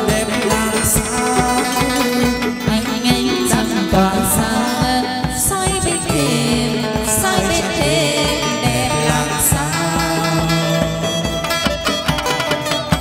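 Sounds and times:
plucked lute: 0:00.0 - 0:13.0
drum and clapper beat: 0:08.7 - 0:13.0.

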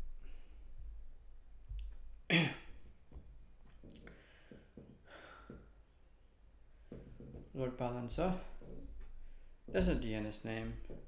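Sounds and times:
soft breathing: 0:00.1 - 0:00.9, 0:03.9 - 0:05.9
man coughing: 0:02.3 - 0:02.8.

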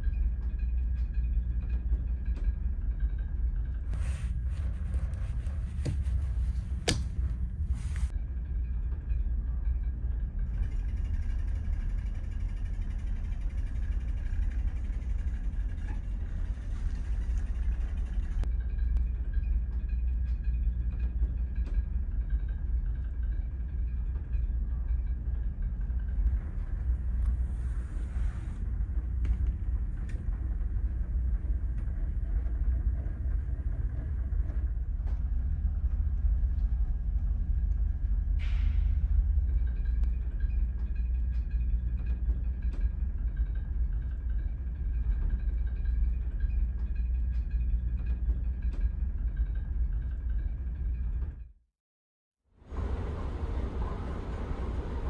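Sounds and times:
ferry engines droning: 0:12.8 - 0:43.6, 0:52.6 - 0:55.0.

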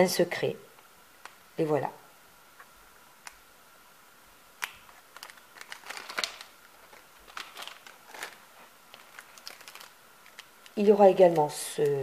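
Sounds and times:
plastic packaging crinkling: 0:04.6 - 0:12.0.

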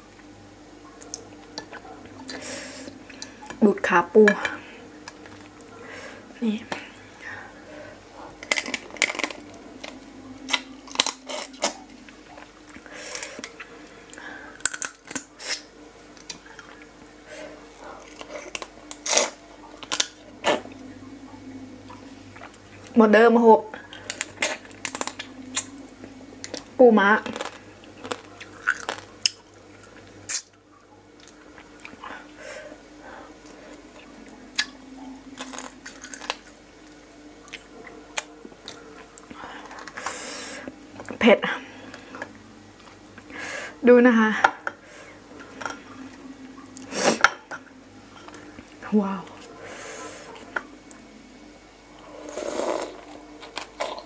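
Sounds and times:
wet sucking and slurping: 0:52.0 - 0:53.1.

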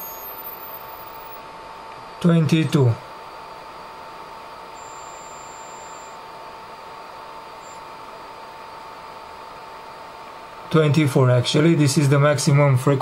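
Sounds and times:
thin high tone: 0:00.0 - 0:01.3
faint steady whine: 0:00.0 - 0:13.0.

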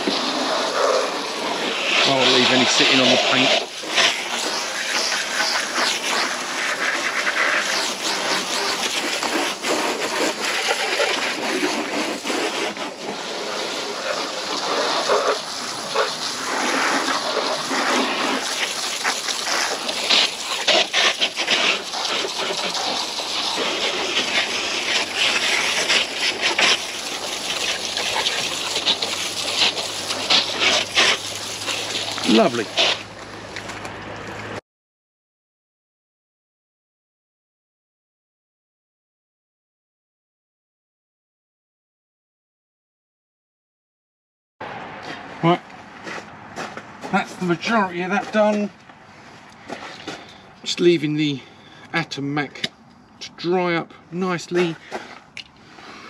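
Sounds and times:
water spraying and splashing: 0:00.0 - 0:34.6.

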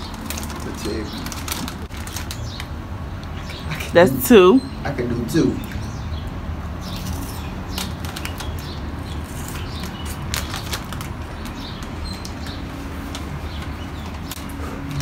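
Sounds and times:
crunchy snack chewing: 0:06.9 - 0:15.0.

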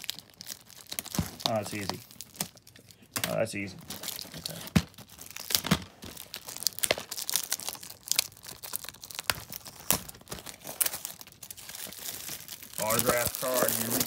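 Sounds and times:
plastic packaging tearing and crinkling: 0:00.0 - 0:14.0.

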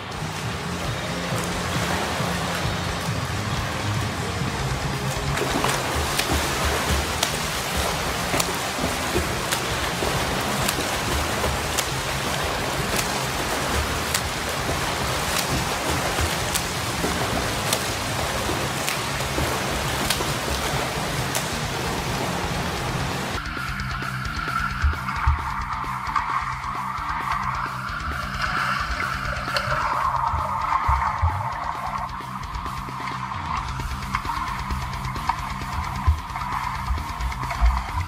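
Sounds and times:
background music: 0:00.0 - 0:38.0
swimmer splashing in pool water: 0:00.1 - 0:23.4.

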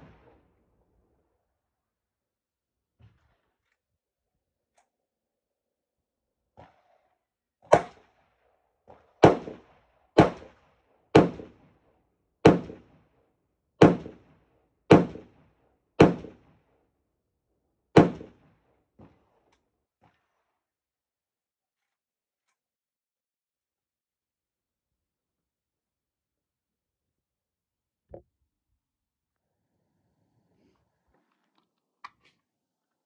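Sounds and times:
gunshots with echo: 0:09.2 - 0:11.6, 0:12.4 - 0:12.9, 0:13.8 - 0:15.4, 0:16.0 - 0:16.5, 0:18.0 - 0:18.5.

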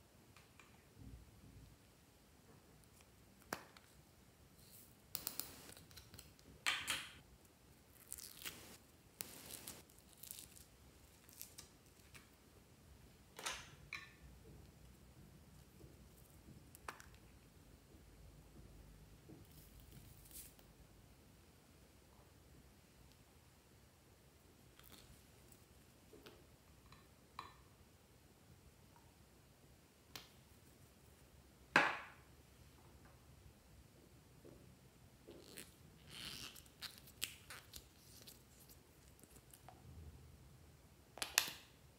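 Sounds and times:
foam beads crackling: 0:08.0 - 0:11.5.

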